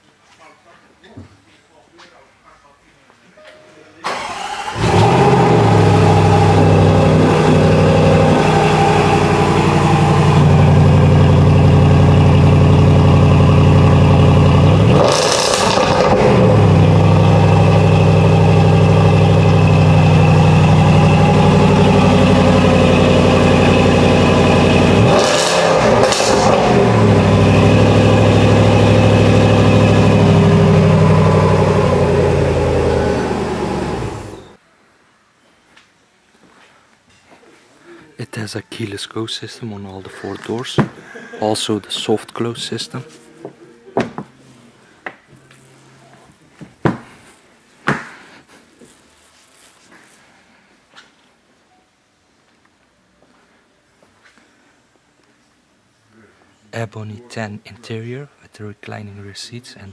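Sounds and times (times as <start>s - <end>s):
car engine starting and idling: 4.0s - 34.6s
engine revs blipped: 4.2s - 34.6s.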